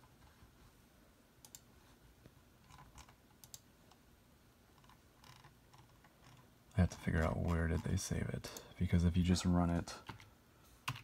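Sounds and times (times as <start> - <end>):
computer keyboard and mouse clicks: 1.4 - 1.7, 2.6 - 4.0, 4.7 - 8.6, 10.0 - 11.0.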